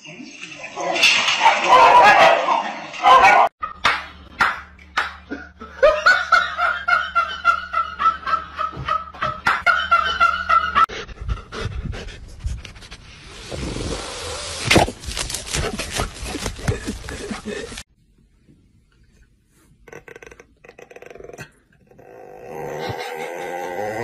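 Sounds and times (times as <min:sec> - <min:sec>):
dog panting: 0:10.9 - 0:13.0.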